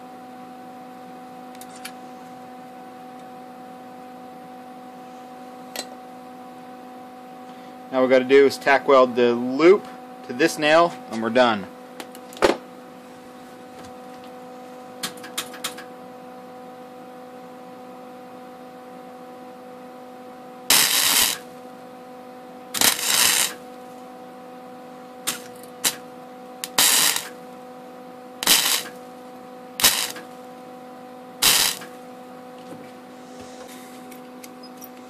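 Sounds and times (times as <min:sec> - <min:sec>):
electrical hum: 0:00.0 - 0:35.0
welding arc crackling: 0:20.7 - 0:21.6, 0:22.7 - 0:23.7, 0:25.3 - 0:27.4, 0:28.4 - 0:30.5, 0:31.4 - 0:32.0.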